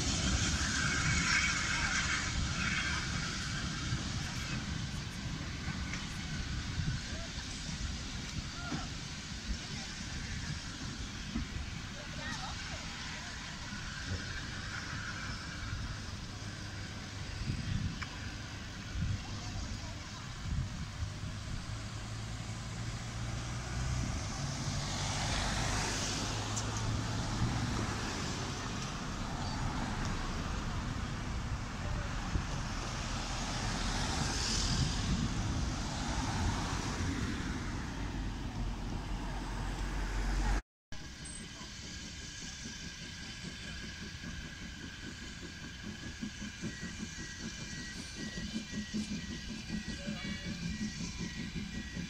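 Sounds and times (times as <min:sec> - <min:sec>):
quiet traffic background: 0:00.0 - 0:41.8
cars driving past: 0:21.4 - 0:40.6.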